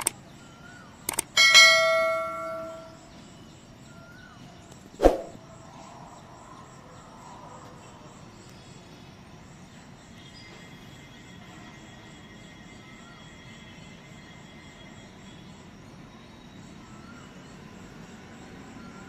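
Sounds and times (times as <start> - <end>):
sharp click: 1.1 - 1.4
bright bell chime: 1.4 - 3.0.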